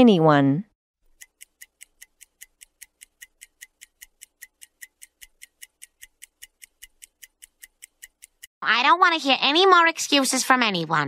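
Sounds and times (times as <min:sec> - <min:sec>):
fast clock-like ticking: 0:01.0 - 0:08.5.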